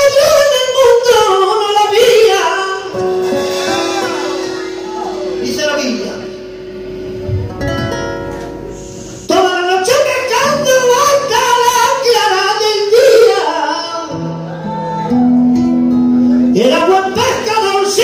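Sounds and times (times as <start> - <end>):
man singing: 0.0 - 3.2, 9.3 - 18.0
acoustic guitar strumming: 0.1 - 18.0.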